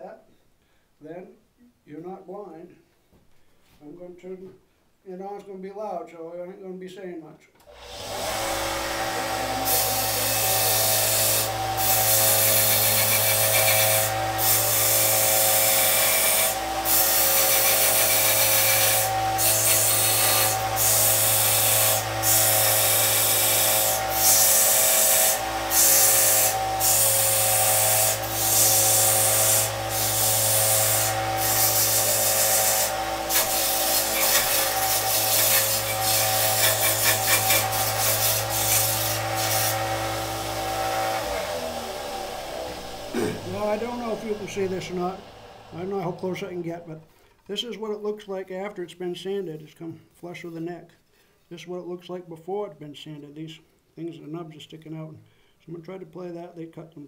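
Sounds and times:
belt sander motor hum: 0:07.6 - 0:46.9
metal grinding on sander belt: 0:07.8 - 0:46.9.

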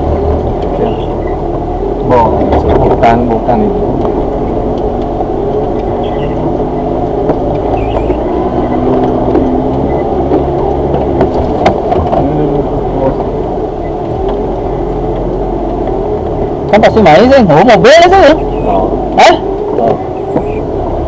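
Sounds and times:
car engine running at low speed: 0:00.0 - 0:21.0.

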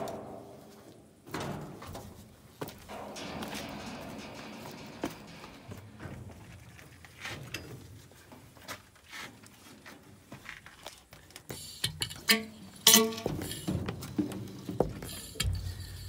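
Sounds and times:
sharp metallic clanks: 0:02.7 - 0:07.9, 0:11.8 - 0:16.0.

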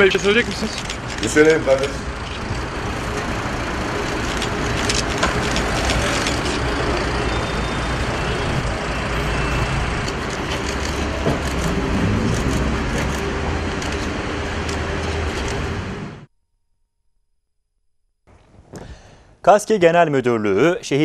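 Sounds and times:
traffic engine rumble: 0:00.0 - 0:16.3.

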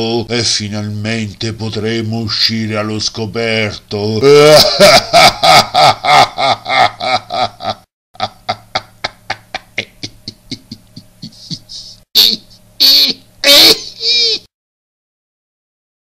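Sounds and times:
low steady hum: 0:00.0 - 0:14.5
voice repeating pitched syllable: 0:09.7 - 0:14.2
loud vocal burst: 0:11.3 - 0:14.2.

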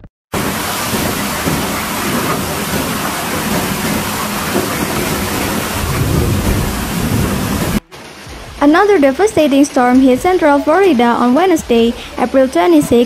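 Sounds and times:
hail and rain falling: 0:00.4 - 0:09.9
low rumble: 0:03.4 - 0:07.8.

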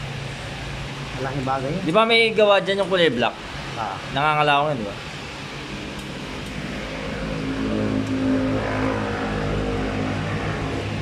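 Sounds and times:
vehicle engine running: 0:05.0 - 0:11.0.

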